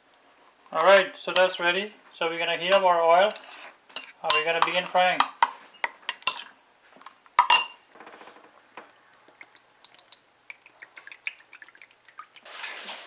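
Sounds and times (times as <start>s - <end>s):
spoon clinking glass bowl: 4.0s - 5.5s, 6.1s - 6.5s, 7.4s - 7.8s
oil dripping into frying pan: 8.8s - 12.5s.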